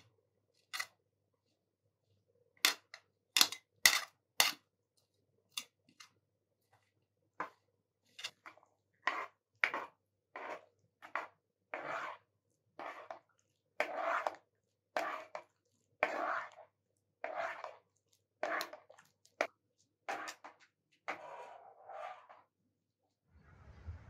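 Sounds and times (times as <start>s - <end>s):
spoon stirring liquid: 2.6s - 22.6s
metal spoon scraping metal bowl: 13.8s - 14.4s, 15.0s - 17.8s, 18.4s - 18.9s, 20.1s - 22.5s.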